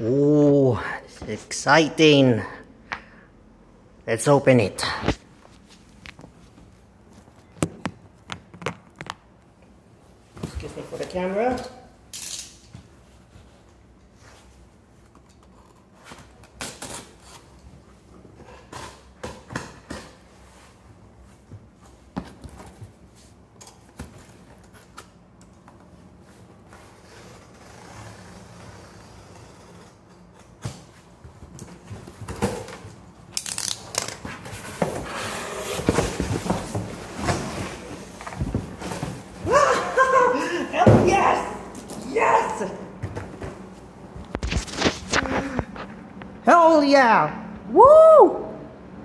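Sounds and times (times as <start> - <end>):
cardboard scraping and rustling: 34.3 - 39.4.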